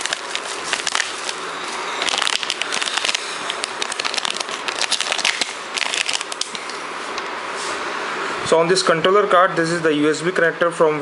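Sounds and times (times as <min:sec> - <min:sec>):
bubble wrap and plastic bag crinkling: 0:00.0 - 0:06.8.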